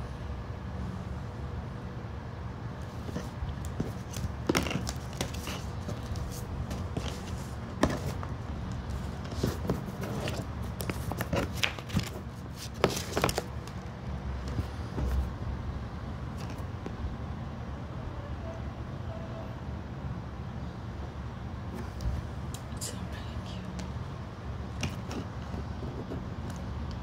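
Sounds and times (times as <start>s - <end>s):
steady low hum: 0.0s - 27.0s
paper and card rustling: 2.9s - 15.3s.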